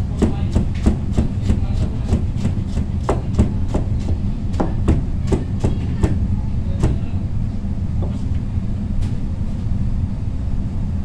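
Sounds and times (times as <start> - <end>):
low hum: 2.9 - 11.0.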